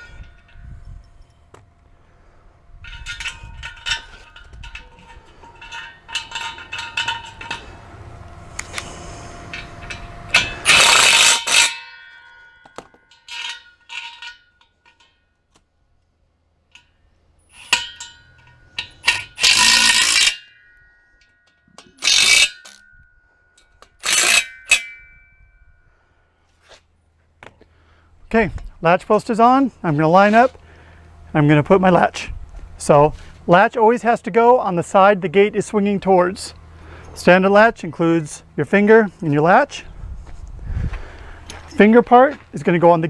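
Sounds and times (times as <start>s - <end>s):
metallic ringing tone: 2.2s - 15.5s, 16.8s - 26.4s.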